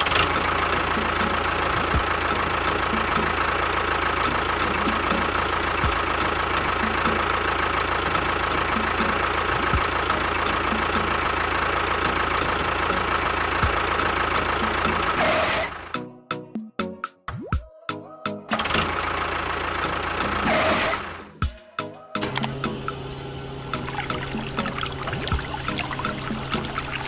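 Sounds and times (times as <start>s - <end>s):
motor whining steadily: 0.1s - 15.2s.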